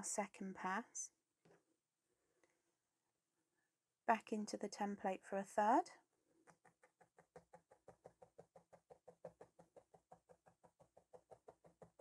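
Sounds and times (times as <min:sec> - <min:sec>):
felting needle tapping: 0:06.5 - 0:12.0.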